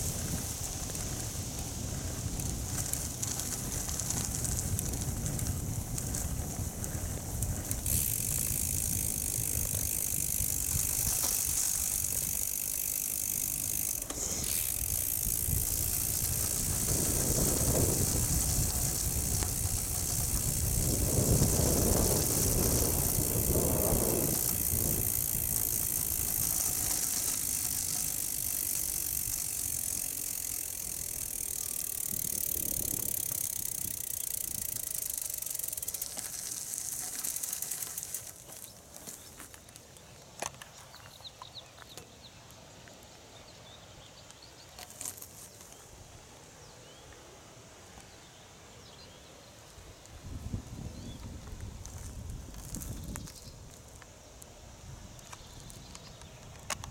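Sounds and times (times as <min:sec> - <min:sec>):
wind rumbling on microphone: 0:00.0 - 0:35.4, 0:49.9 - 0:54.0
bicycle tyres on gravel: 0:00.0 - 0:46.3, 0:49.6 - 0:56.9.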